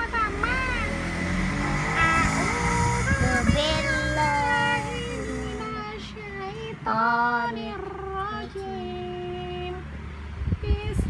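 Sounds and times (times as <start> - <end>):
girl chanting: 0.0 - 1.1, 2.0 - 7.2.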